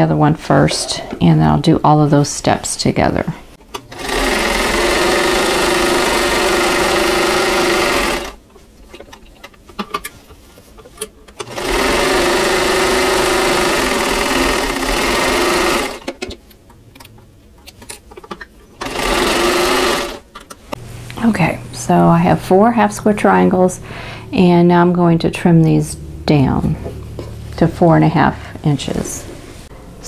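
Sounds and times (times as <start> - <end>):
sewing machine running: 3.9 - 8.4, 11.4 - 16.1, 18.8 - 20.2.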